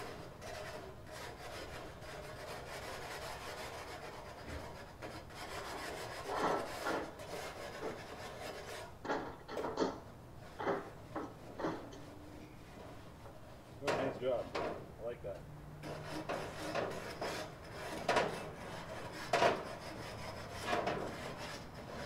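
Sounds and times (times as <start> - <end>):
scrubbing a grill: 0.0 - 9.0, 15.8 - 22.0.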